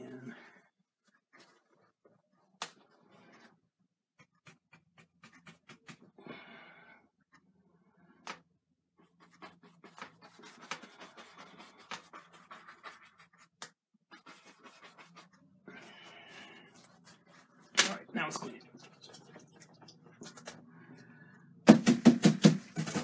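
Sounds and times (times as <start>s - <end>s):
brush scratching on canvas: 9.0s - 17.8s.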